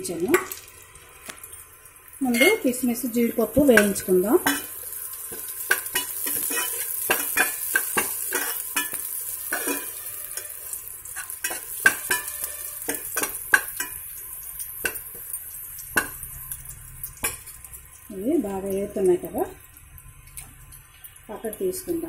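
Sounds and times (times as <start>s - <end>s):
nuts sizzling in fat: 0.0s - 22.0s
spoon scraping and clinking on pan: 2.3s - 2.7s, 3.7s - 17.6s.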